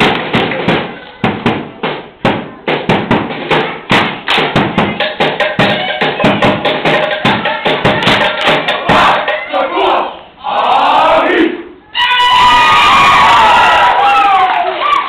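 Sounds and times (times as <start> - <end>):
group slapping bodies and clapping: 0.0 - 9.2.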